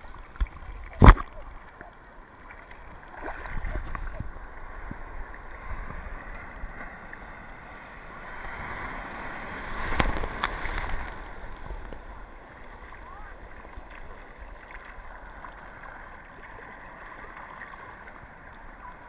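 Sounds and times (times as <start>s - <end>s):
ocean surf sloshing: 0.0s - 19.0s
wind on microphone: 3.2s - 12.3s.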